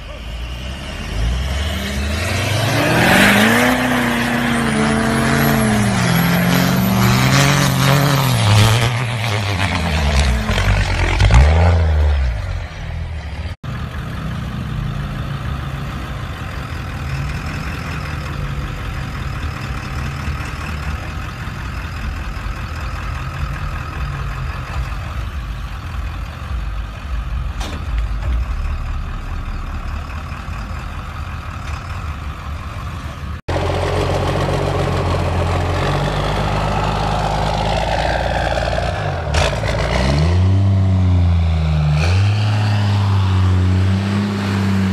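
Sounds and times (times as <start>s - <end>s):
truck engine revving: 0.0s - 44.9s
truck engine idling: 12.5s - 38.2s.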